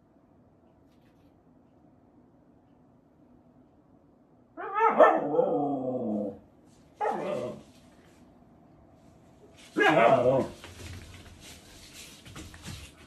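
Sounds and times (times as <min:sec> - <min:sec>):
husky howling call: 0:04.6 - 0:06.4.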